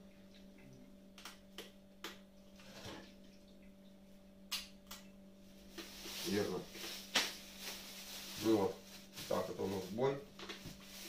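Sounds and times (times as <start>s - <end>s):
low electrical hum: 0.0s - 11.0s
plastic bag of pasta crinkling: 5.8s - 9.6s.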